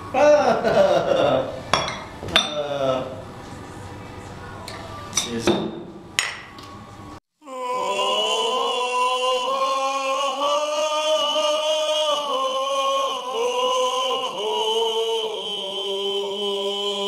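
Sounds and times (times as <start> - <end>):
slow chant-like singing: 7.4 - 17.0.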